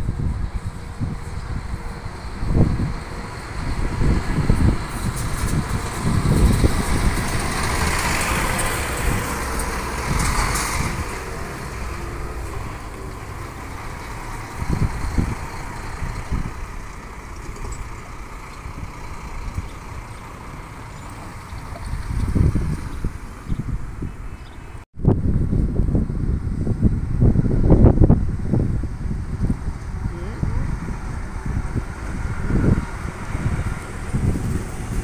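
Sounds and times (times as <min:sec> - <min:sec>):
coach driving past: 0:00.0 - 0:24.8.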